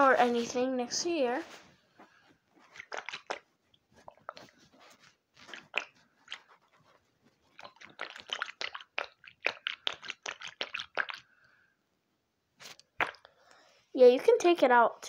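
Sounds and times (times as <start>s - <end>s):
squishy toys crunching and crackling: 2.6s - 6.8s, 7.5s - 11.3s.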